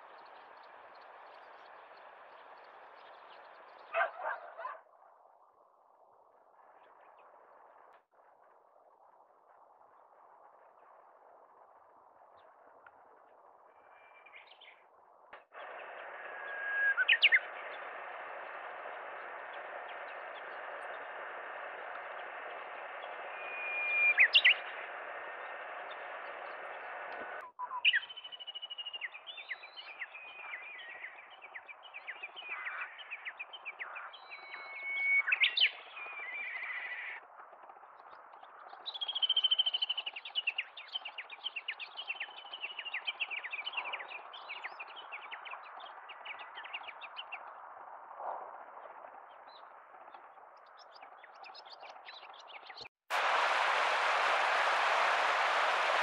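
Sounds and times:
bird singing whistles: 0:16.4 - 0:17.6, 0:23.3 - 0:24.7, 0:27.5 - 0:32.9, 0:33.8 - 0:37.2, 0:38.9 - 0:44.9
bird chirping quickly: 0:16.4 - 0:17.9, 0:22.4 - 0:26.8
steady hiss: 0:53.1 - 0:56.0.

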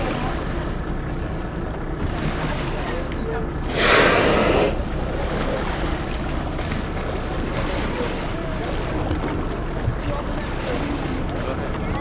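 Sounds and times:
water sloshing: 0:00.0 - 0:12.0
wind: 0:00.0 - 0:12.0
whale blowing: 0:03.6 - 0:05.6.

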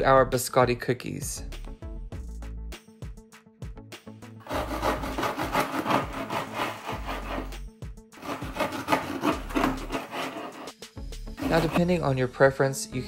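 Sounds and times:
knife sawing on wooden board: 0:04.4 - 0:07.6, 0:08.2 - 0:10.8, 0:11.4 - 0:12.0.

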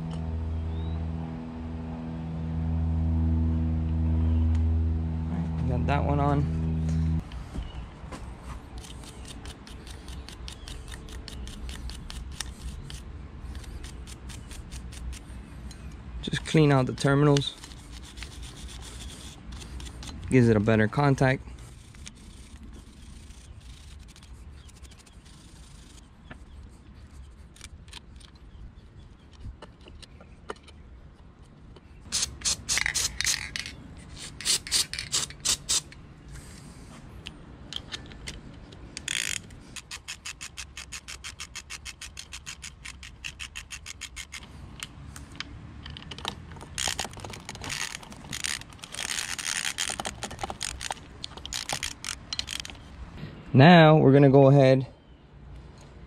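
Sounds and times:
ratchet wrench clicking: 0:08.8 - 0:15.2, 0:32.1 - 0:36.0, 0:37.7 - 0:52.8.

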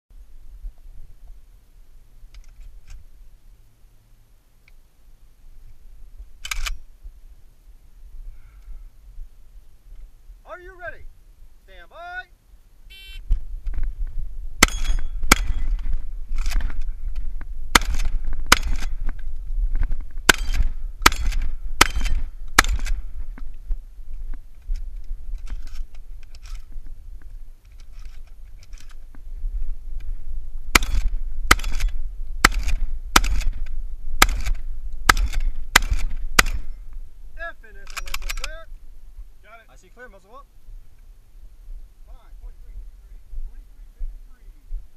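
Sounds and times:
shotgun shots: 0:14.6 - 0:16.7, 0:17.7 - 0:19.0, 0:20.3 - 0:23.1, 0:30.7 - 0:33.6, 0:34.2 - 0:36.8.

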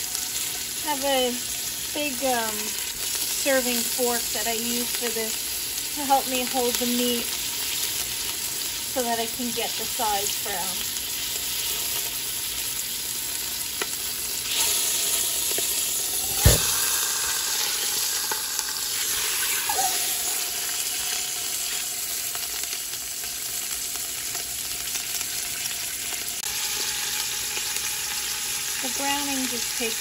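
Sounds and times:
meat sizzling in hot oil: 0:00.0 - 0:30.0
sharp knock: 0:16.3 - 0:16.8.

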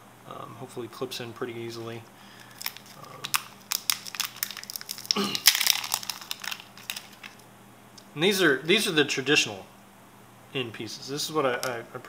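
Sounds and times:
plastic packaging crinkling: 0:02.3 - 0:07.5.

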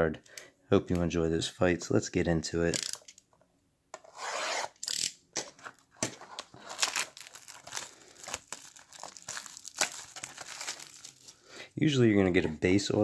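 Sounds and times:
plastic film crinkling and crackling: 0:06.3 - 0:11.4.

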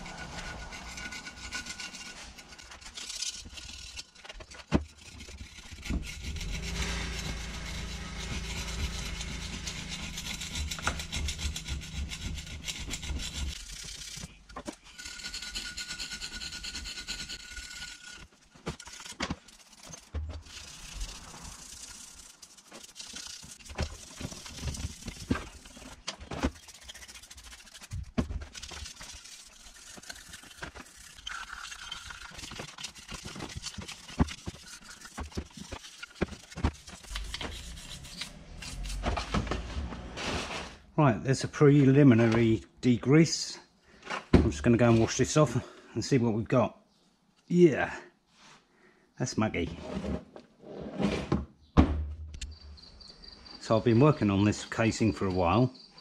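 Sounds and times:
screwdriver scraping metal: 0:00.0 - 0:39.3.

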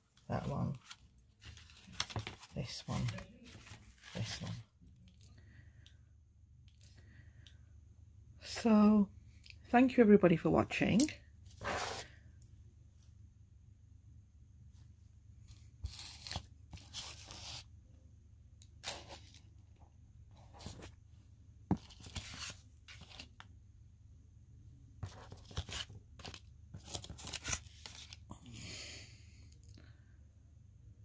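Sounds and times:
paper rustling and crinkling: 0:00.6 - 0:04.7, 0:15.5 - 0:17.6, 0:21.7 - 0:23.4, 0:25.0 - 0:28.3.

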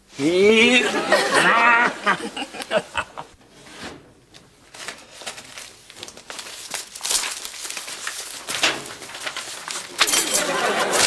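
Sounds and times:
paper rustling and crinkling: 0:03.6 - 0:11.0.

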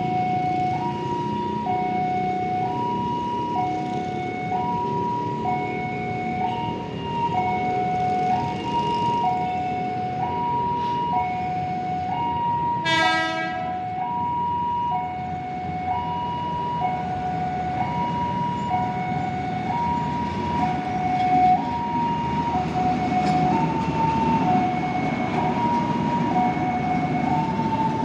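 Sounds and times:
train rumbling on rails: 0:00.0 - 0:28.0
train horn blast: 0:12.8 - 0:13.8.

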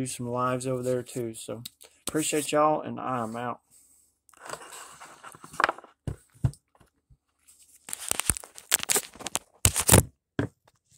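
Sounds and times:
crinkling rustles: 0:07.4 - 0:10.0.

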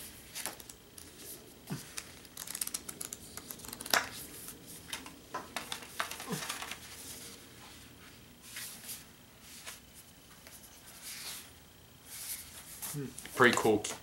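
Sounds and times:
pages rustling and flipping: 0:00.0 - 0:07.4.

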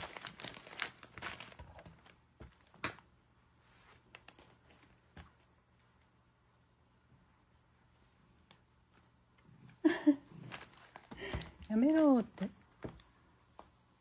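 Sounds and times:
plastic packaging crinkling: 0:00.0 - 0:03.0, 0:10.4 - 0:12.3.

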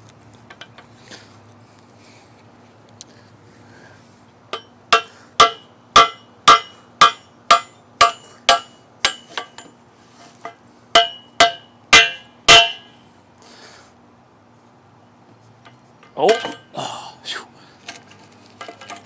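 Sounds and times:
hammer striking metal: 0:04.5 - 0:09.8, 0:11.0 - 0:13.0, 0:16.2 - 0:16.7.

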